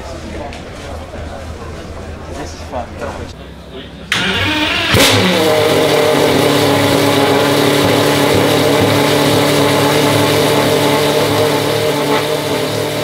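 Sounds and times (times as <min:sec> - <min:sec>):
car engine starting and idling: 0:03.4 - 0:13.0.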